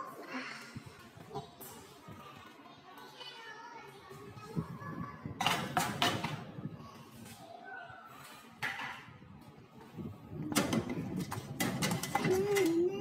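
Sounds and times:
metal pans clattering on oven racks: 10.5s - 13.0s.

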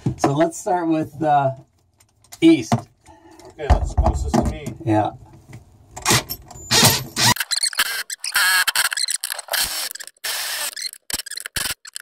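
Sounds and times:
cordless drill spinning nut: 6.1s - 12.0s.

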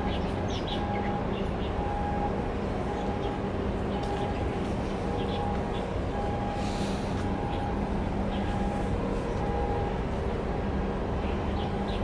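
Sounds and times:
ship engines droning: 0.0s - 12.0s.

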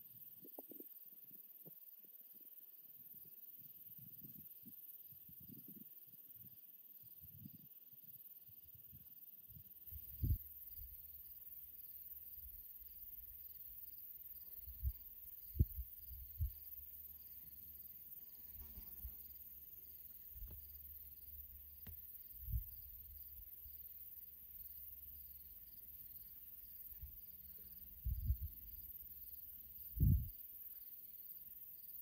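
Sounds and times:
insects chirping: 0.0s - 32.0s
dull low thumps: 14.7s - 16.6s, 21.8s - 22.9s, 28.0s - 28.6s, 30.0s - 30.3s.

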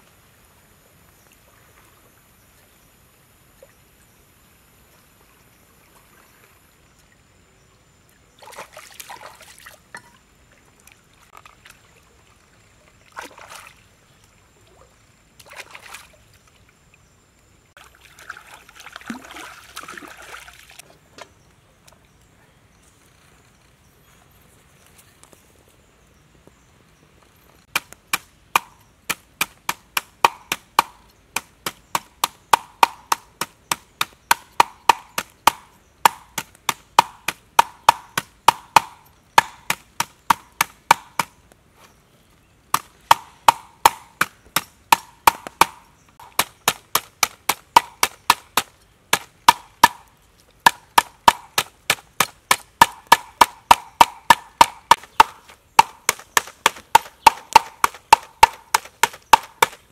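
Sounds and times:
knife chopping on wooden block: 50.7s - 59.8s.

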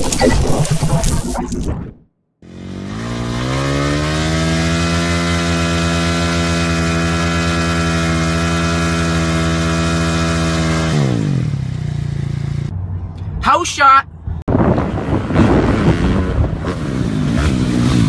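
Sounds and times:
motocross engine revving: 2.4s - 12.7s, 14.6s - 18.0s.

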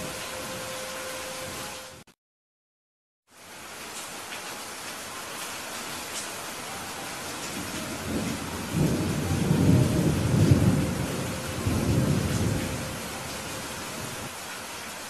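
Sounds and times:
steady rain: 0.0s - 2.1s, 3.3s - 15.0s
thunder rumbling: 7.4s - 14.3s.

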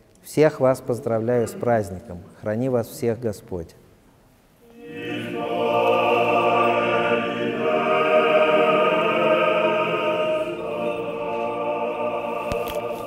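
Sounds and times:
choir singing sustained chords: 4.6s - 13.0s.

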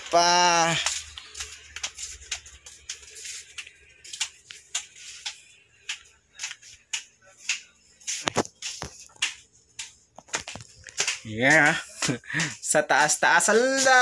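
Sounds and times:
footsteps: 0.0s - 14.0s
handling rustles and taps: 0.8s - 12.2s.

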